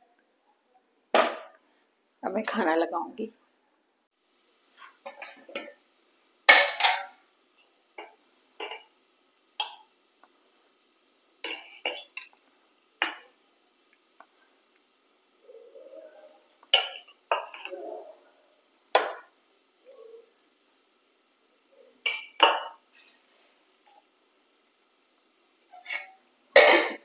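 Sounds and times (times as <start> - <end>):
steel pot and spoon clinking: 11.4 - 12.3.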